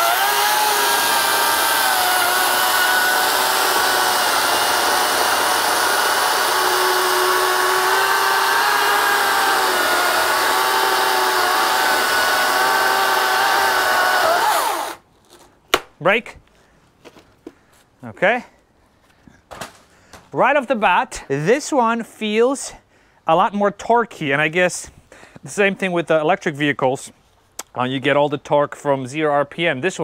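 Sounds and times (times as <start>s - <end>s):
chainsaw cutting wood: 0.0s - 15.0s.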